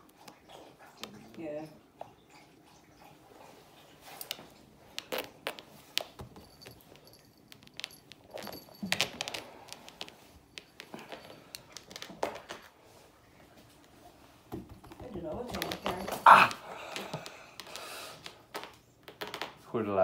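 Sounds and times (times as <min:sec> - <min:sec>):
cat rustling and scratching: 0:00.0 - 0:19.7
collar tinkling: 0:05.6 - 0:12.4, 0:15.1 - 0:17.3.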